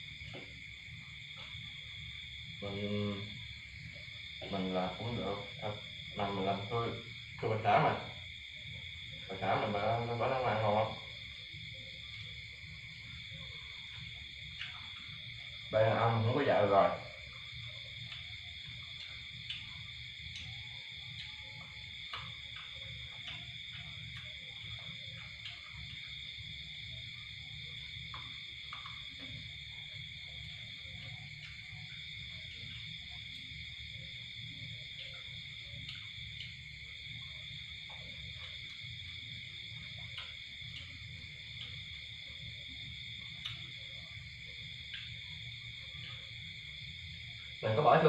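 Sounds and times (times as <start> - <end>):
night insects chorus: 0.0 - 48.0.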